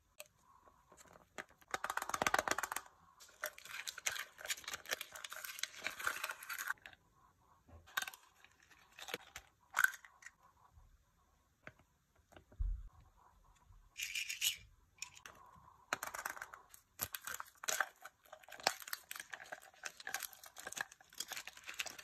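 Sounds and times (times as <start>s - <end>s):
chocolate shell cracking: 1.5s - 6.8s, 16.0s - 22.0s
foil wrapper crinkling and tearing: 2.0s - 6.8s, 17.0s - 22.0s.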